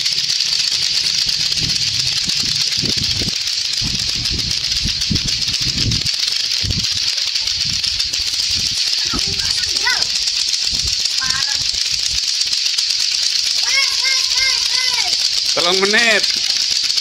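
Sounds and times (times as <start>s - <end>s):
plastic ball clackers knocking: 0.0s - 17.0s.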